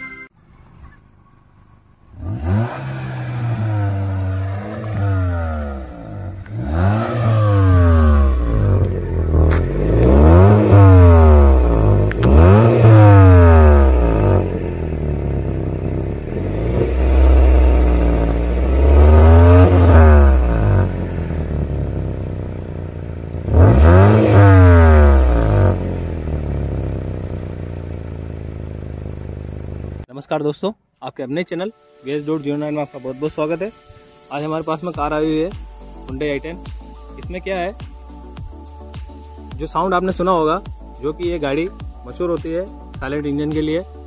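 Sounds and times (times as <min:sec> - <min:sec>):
car engine revving and idling: 0:02.1 - 0:30.1.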